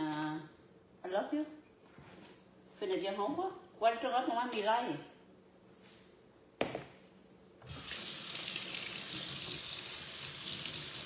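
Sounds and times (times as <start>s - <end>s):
water running into a bowl: 7.7s - 11.0s.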